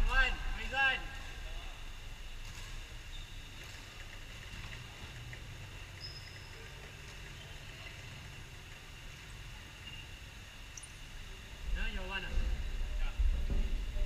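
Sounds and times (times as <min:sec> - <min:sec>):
low hum: 0:00.0 - 0:06.7.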